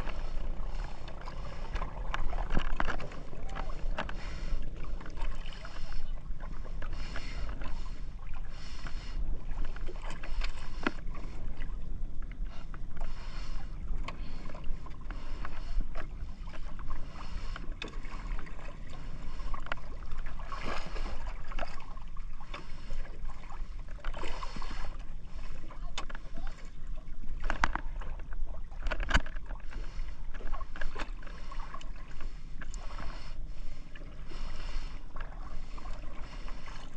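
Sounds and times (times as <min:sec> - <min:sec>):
water splashing against boat hull: 0:00.0 - 0:36.9
boat clicks and knocks: 0:27.4 - 0:29.6.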